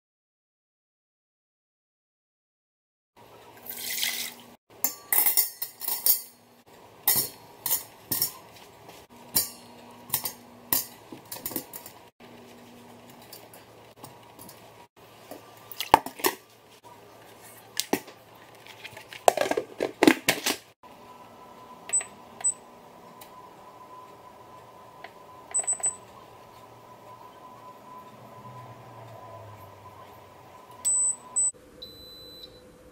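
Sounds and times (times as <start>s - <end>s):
control panel beeps: 21.9s - 22.6s, 23.2s - 30.0s, 30.7s - 32.6s.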